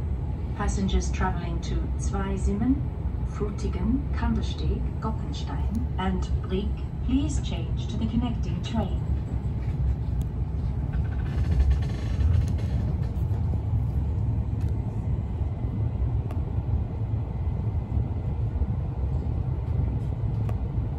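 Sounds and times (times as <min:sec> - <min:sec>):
train rumbling on rails: 0:00.0 - 0:20.9.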